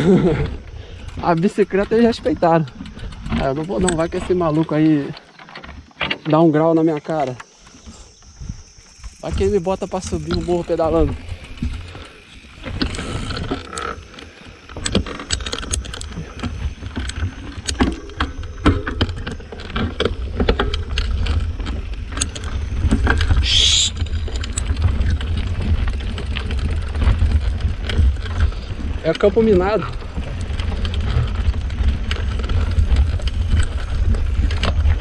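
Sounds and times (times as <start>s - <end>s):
bike knocks and rattles: 0.0s - 35.0s
wind on microphone: 8.2s - 13.7s, 18.6s - 29.0s.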